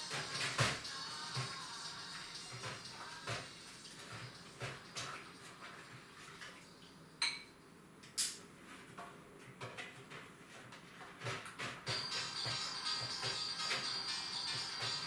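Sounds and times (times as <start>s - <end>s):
dishes clinking and clattering: 7.2s - 7.5s, 11.1s - 15.0s.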